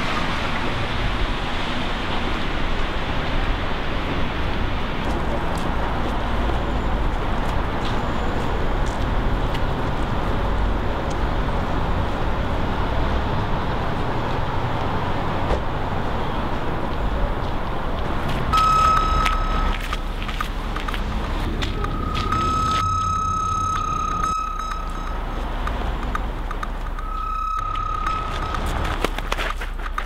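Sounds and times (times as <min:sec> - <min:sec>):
traffic rumble: 0:00.0 - 0:30.0
steady high tone: 0:18.5 - 0:20.2, 0:21.2 - 0:29.3.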